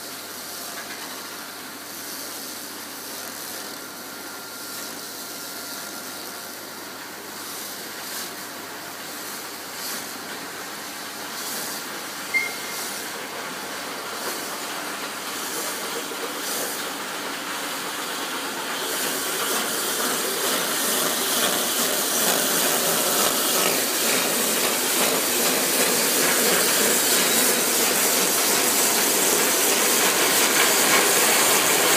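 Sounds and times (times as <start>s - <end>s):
lathe hissing machine noise: 0.0s - 31.9s
brief high squeak: 12.3s - 13.0s.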